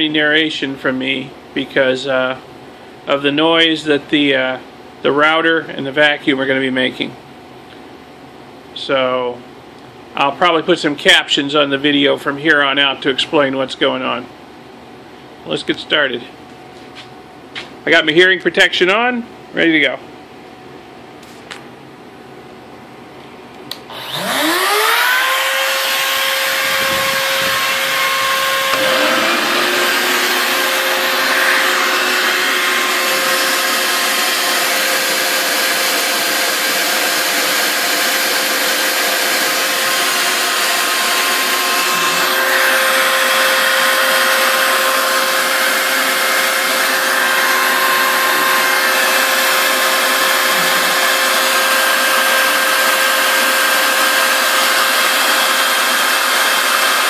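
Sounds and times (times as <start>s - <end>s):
router motor whining: 23.9s - 57.0s
shop vac rushing: 23.9s - 57.0s.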